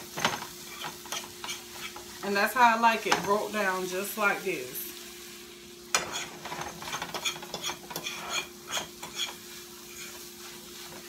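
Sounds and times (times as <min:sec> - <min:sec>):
metal fork scraping frying pan: 0:00.1 - 0:02.1, 0:05.9 - 0:10.9.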